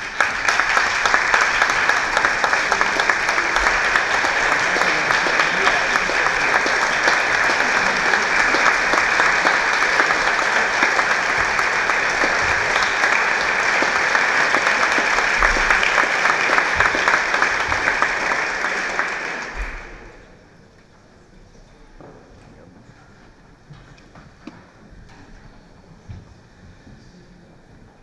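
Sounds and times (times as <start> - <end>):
audience applauding: 0.0 - 20.3.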